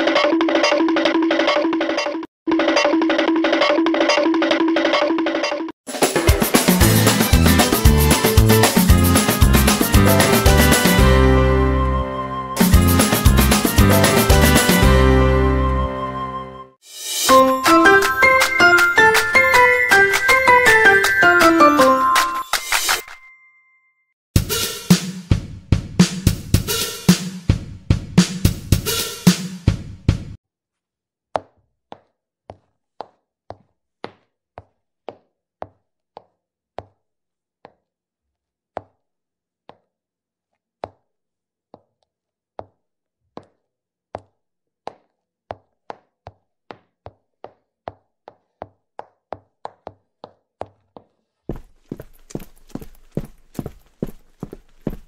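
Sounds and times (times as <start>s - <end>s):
drum-heavy music: 5.9s - 11.5s, 12.6s - 15.3s, 16.9s - 22.8s, 24.4s - 30.4s.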